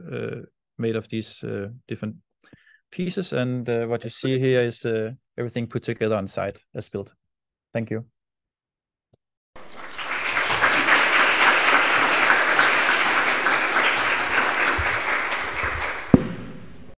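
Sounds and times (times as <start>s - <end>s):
audience applauding: 9.6s - 16.3s
sharp thump: 16.1s - 16.9s.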